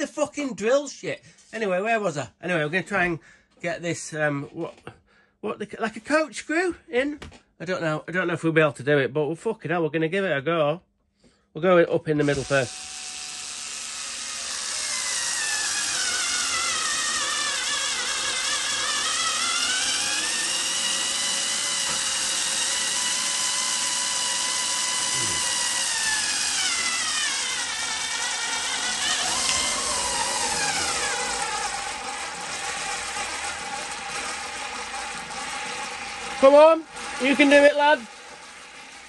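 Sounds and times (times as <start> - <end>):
electric screwdriver motor whining: 12.2 - 39.0.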